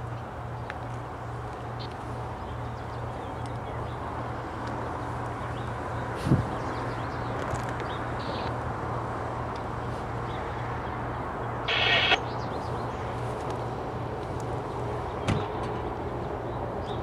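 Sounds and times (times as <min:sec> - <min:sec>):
high-pitched squeal: 0:11.7 - 0:12.2.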